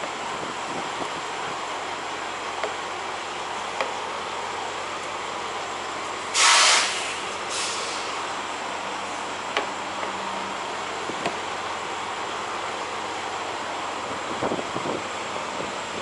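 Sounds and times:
trucks idling: 0.0 - 16.0
wind: 0.0 - 16.0
air brakes hissing: 6.3 - 8.4.

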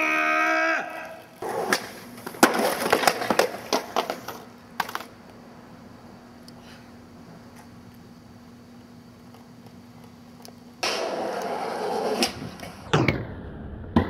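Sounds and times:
person yelling in pain: 0.0 - 1.2
skateboard clattering on asphalt: 1.4 - 5.2, 10.8 - 12.9.

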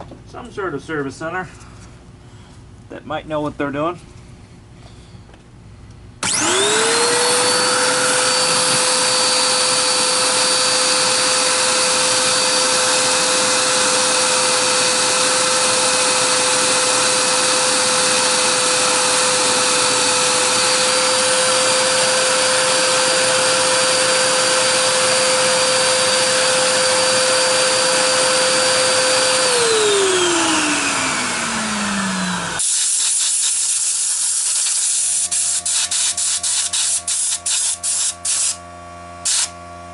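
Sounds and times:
vacuum motor whining: 6.2 - 32.6.

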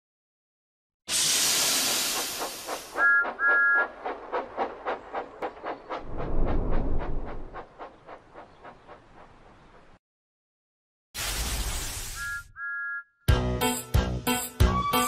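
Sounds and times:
steam engine puffing: 1.1 - 6.1
steam hissing: 1.1 - 6.1
two-note steam whistle toots: 3.0 - 3.9, 12.1 - 13.0, 14.6 - 15.0
low rumble: 3.9 - 8.4.

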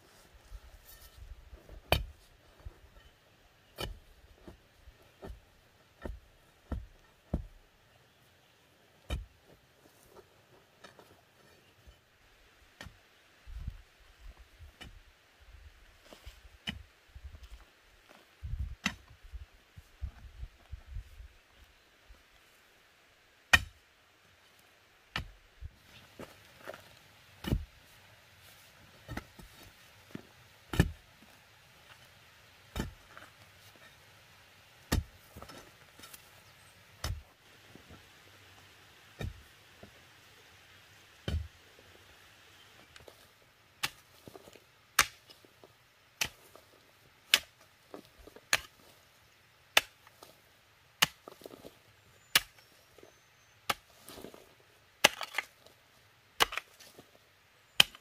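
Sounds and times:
hoe striking earth: 0.8 - 7.6, 9.0 - 11.2, 12.8 - 13.0, 14.7 - 15.0, 16.2 - 16.9, 18.8 - 19.2, 23.5 - 23.8, 25.1 - 31.1, 31.8 - 34.0, 34.8 - 37.3, 39.2 - 40.0, 41.2 - 41.6, 42.8 - 50.4, 51.0 - 55.8, 56.4 - 58.0.

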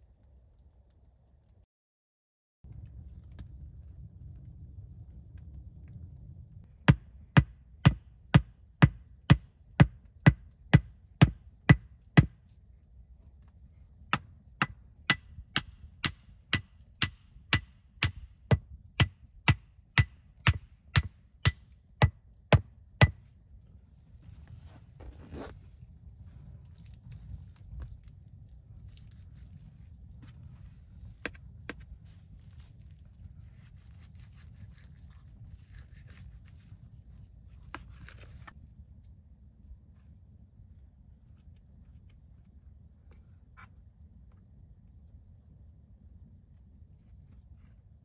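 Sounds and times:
hatchet knocking wooden stake: 6.8 - 12.4, 14.1 - 23.2.

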